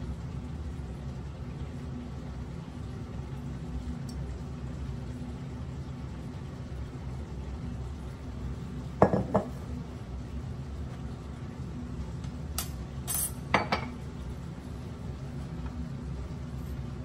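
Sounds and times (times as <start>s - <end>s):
low steady hum: 0.0s - 17.0s
ceramic mug knocking on metal: 9.0s - 9.6s.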